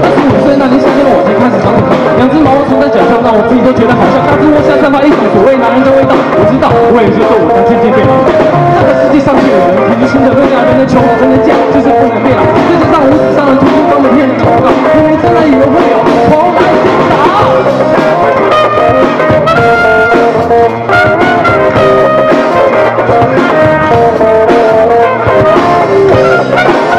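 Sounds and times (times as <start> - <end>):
person singing into microphone: 0.0 - 19.0
bass guitar: 0.0 - 26.9
drum kit: 0.0 - 26.9
electric guitars: 0.0 - 26.9
trumpet: 0.0 - 26.9.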